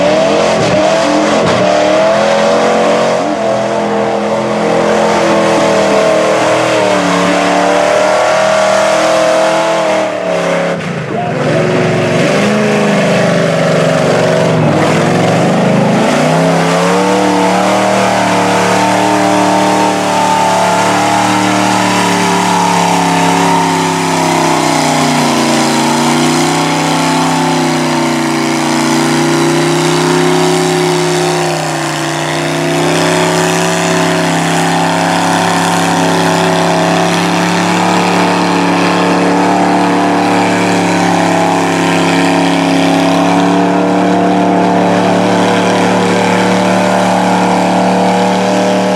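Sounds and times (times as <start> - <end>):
tires churning through mud: 0.0 - 48.9
truck engine running hard: 0.0 - 48.9.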